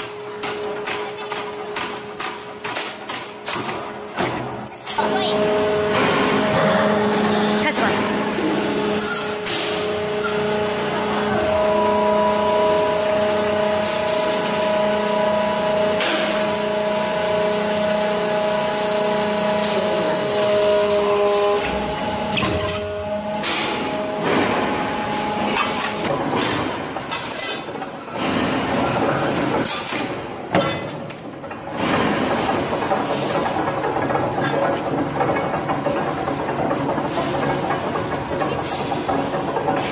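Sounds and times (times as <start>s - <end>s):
hydraulic press whining: 3.6s - 39.9s
metal clatter and knocks: 21.3s - 39.9s.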